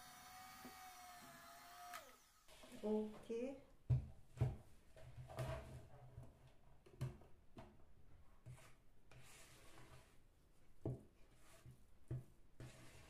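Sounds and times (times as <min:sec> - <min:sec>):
spatula scraping batter in bowl: 0:08.4 - 0:10.3, 0:11.2 - 0:13.0.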